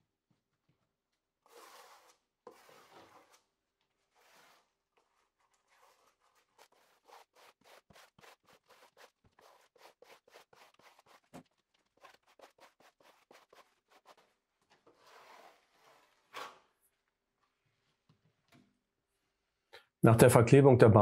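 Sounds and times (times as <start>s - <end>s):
trowel scraping over membrane: 1.4s - 16.7s.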